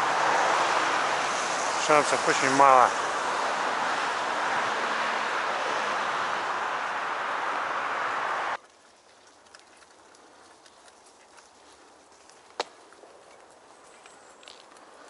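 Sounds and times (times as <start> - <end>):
steady rushing outdoor noise: 0.0 - 8.6
faint clicks: 8.6 - 11.6.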